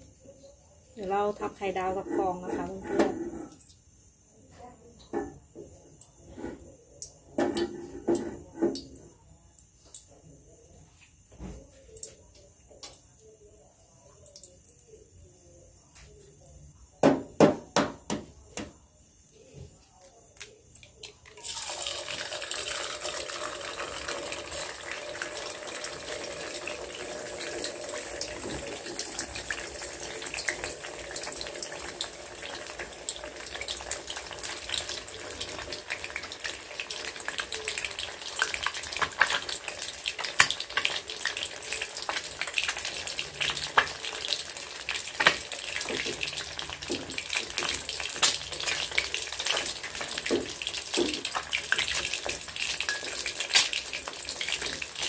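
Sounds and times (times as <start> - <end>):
eggs sizzling in hot oil: 1.0 - 4.2, 20.9 - 55.0.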